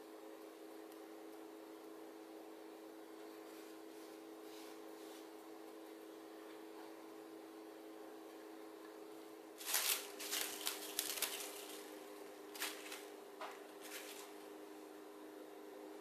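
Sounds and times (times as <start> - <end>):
faint steady hum: 0.0 - 16.0
cling wrap crinkling: 9.6 - 13.1, 13.8 - 14.4.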